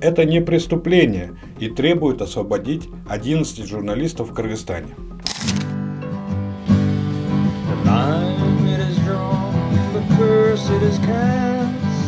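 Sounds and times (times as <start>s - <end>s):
strummed acoustic guitar: 5.8s - 12.0s
man singing: 7.8s - 12.0s.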